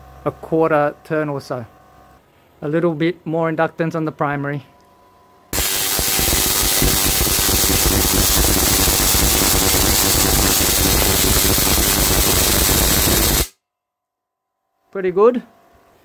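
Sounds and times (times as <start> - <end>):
tesla coil sparking: 5.6 - 13.5.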